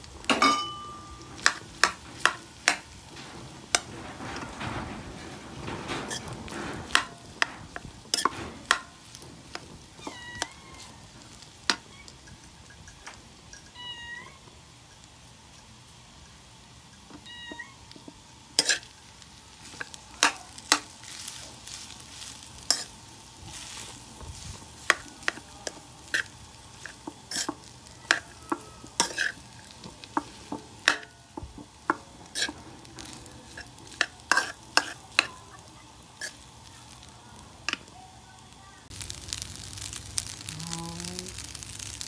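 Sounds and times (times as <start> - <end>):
metal spoon scraping a wok: 0.4 - 3.9, 6.1 - 13.8, 18.6 - 19.0, 19.6 - 24.0, 24.6 - 35.4, 36.2 - 37.1.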